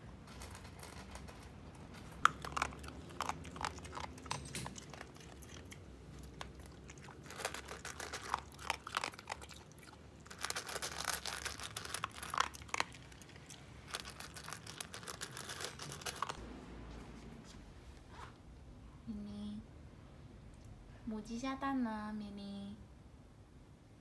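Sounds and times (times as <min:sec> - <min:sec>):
dog crunching dry kibble: 0:00.1 - 0:16.4.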